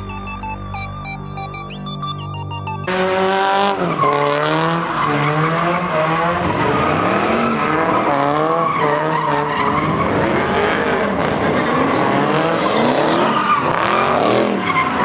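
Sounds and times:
electronic music: 0.0 - 6.6
car engine revving: 2.9 - 15.0
tyres squealing on pavement: 2.9 - 15.0.

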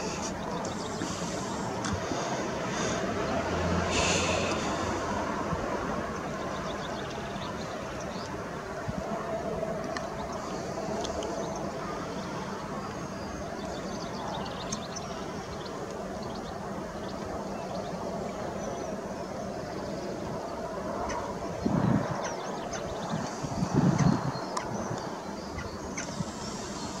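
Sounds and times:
small birds chirping: 0.0 - 3.4, 10.0 - 27.0.

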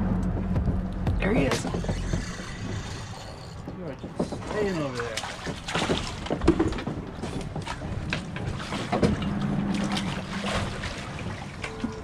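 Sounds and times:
knocks: 3.6 - 9.2
water splashing around a net: 4.7 - 12.0.

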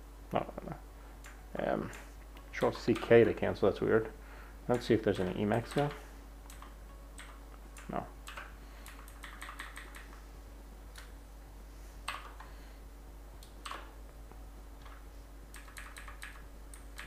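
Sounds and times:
computer keyboard typing: 1.2 - 3.4, 4.7 - 10.2, 12.1 - 12.5, 13.4 - 13.9, 14.8 - 17.0.

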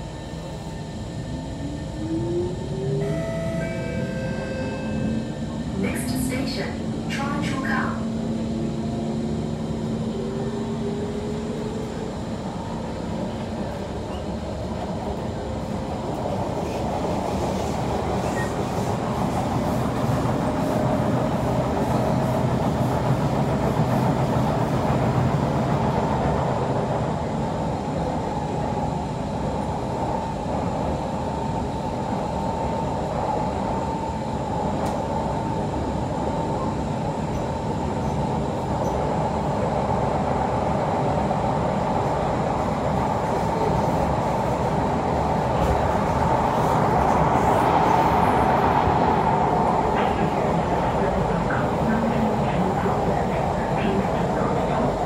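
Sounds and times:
train motor whine: 1.6 - 6.2.

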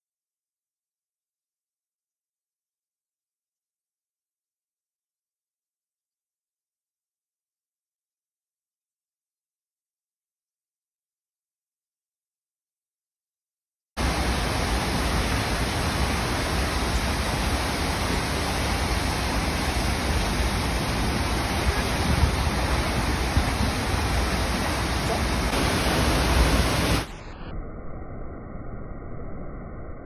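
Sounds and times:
waterfall rushing: 14.0 - 27.3.

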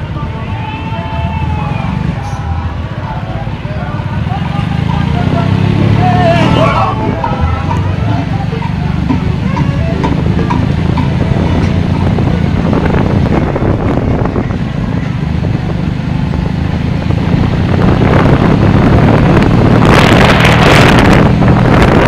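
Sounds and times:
wind buffeting microphone: 6.6 - 22.0.

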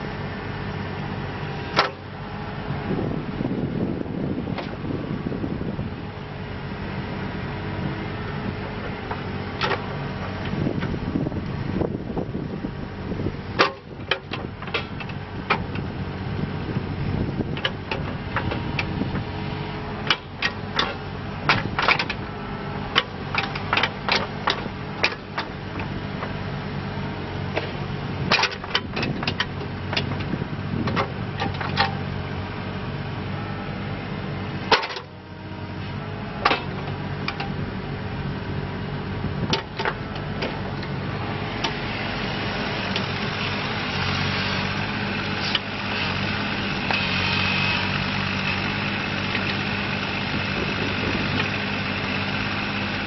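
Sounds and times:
diesel excavator engine running: 0.0 - 53.0
metal clanks and knocks: 36.4 - 37.6.

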